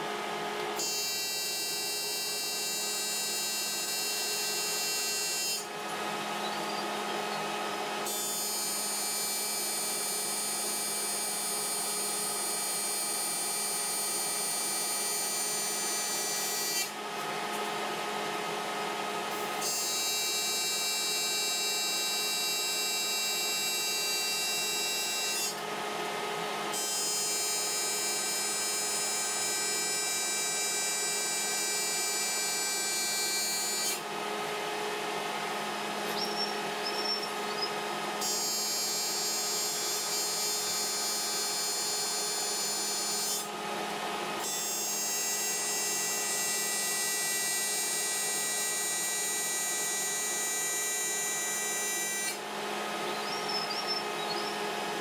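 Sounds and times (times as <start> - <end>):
welding arc buzzing: 0.8 - 16.9, 19.3 - 25.6, 26.8 - 34.0, 35.9 - 43.5, 44.4 - 55.0.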